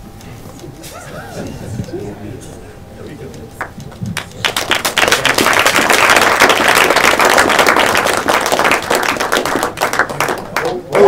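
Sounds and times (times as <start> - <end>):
audience applauding: 3.6 - 11.0.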